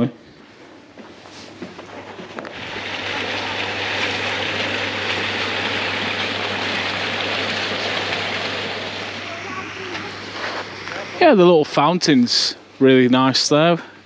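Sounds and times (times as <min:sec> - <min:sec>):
fountain water splashing: 0:02.4 - 0:11.4.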